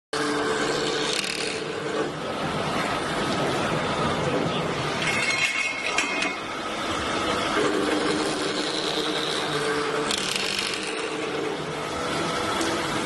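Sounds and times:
saw blade cutting steel tube: 0.2s - 2.2s, 5.0s - 6.5s, 7.3s - 13.0s.

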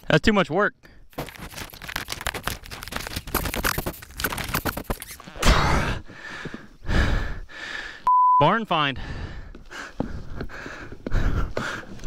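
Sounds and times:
dry leaves crunching and rustling: 1.2s - 4.7s.

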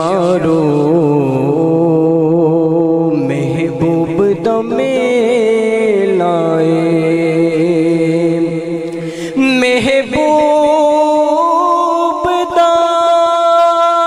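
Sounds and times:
man singing into a microphone: 0.0s - 14.0s.

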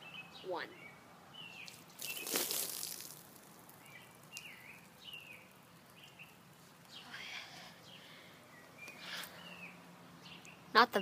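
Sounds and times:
birds chirping: 0.0s - 11.0s
water splashing onto ground: 1.6s - 6.6s.

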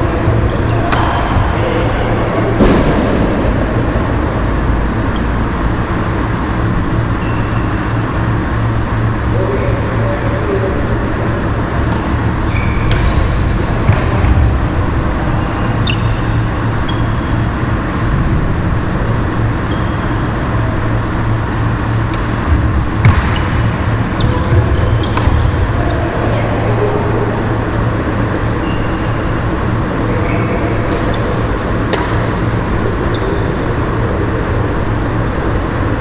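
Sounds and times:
loud steady low hum: 0.0s - 36.0s
rackets striking shuttlecock: 0.7s - 1.6s, 11.8s - 14.4s, 22.0s - 26.0s, 31.8s - 33.4s
shoes squeaking on wooden court: 7.1s - 8.4s, 12.0s - 14.4s, 15.2s - 17.5s, 19.6s - 20.3s, 22.2s - 26.6s, 28.4s - 32.1s, 33.0s - 33.7s.

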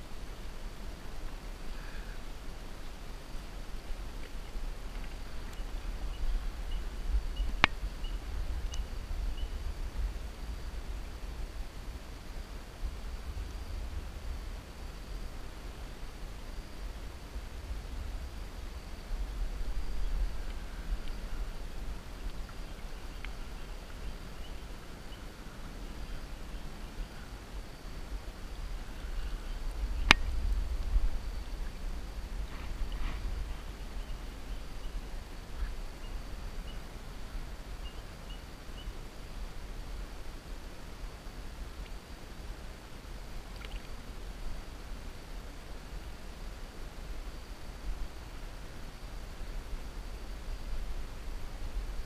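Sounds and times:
wind rumble on microphone: 0.0s - 52.0s
faint high chirp: 5.4s - 9.7s, 33.7s - 36.9s, 37.8s - 39.0s
river water flowing: 14.3s - 52.0s.

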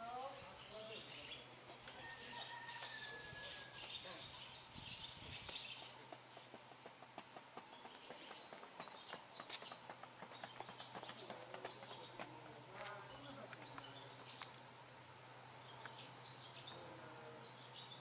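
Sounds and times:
birds chirping: 0.0s - 18.0s
footsteps on cobblestones: 5.5s - 14.5s.

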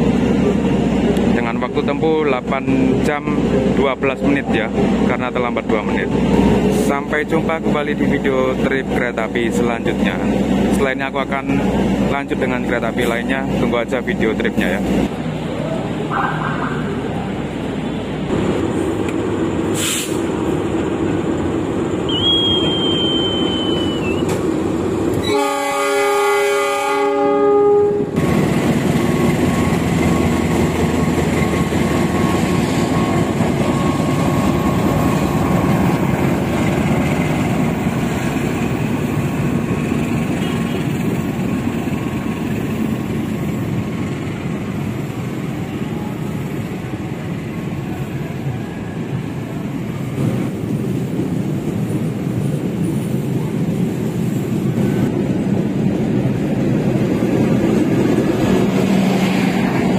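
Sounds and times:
train rumbling on rails: 0.0s - 59.9s
train horn blast: 25.2s - 28.2s.

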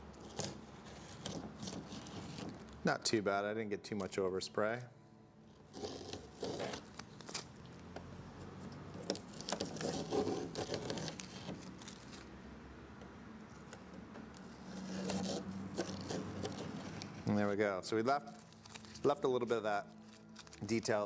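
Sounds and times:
tape being peeled off: 0.1s - 2.8s, 5.5s - 12.4s, 13.5s - 17.3s, 18.1s - 21.0s.

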